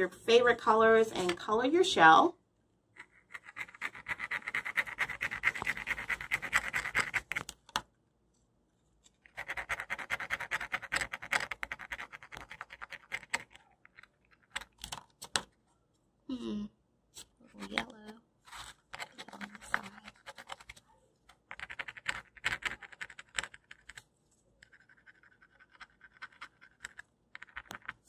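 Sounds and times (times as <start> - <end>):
crayon scratching on shell: 3.0 - 7.6, 9.2 - 14.8, 17.2 - 24.0, 24.6 - 28.0.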